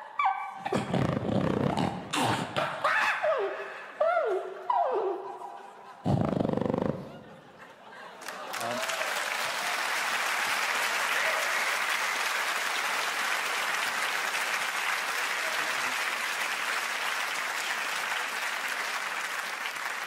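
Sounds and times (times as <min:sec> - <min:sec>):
audience applauding: 0:08.1 - 0:20.0.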